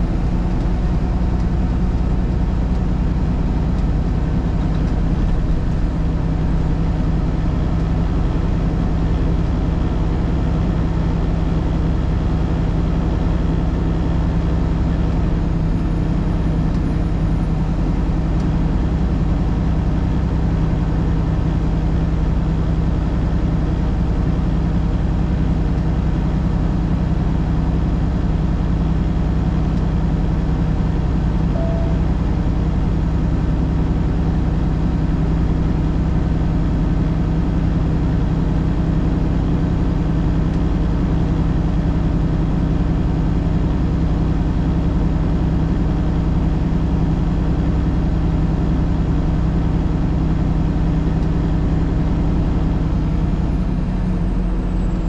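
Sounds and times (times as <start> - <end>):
vehicle engine and road noise: 0.0 - 55.0.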